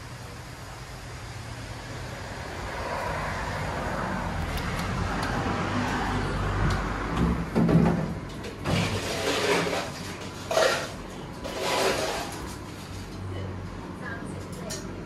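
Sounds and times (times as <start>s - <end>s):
passing vehicle engine and tyres: 0.0s - 9.9s.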